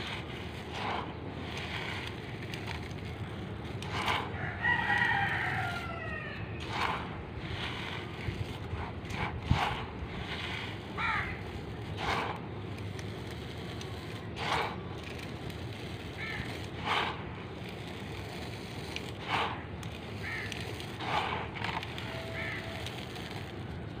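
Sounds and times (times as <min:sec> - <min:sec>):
charcoal granules rattling in pan: 0:00.0 - 0:24.0.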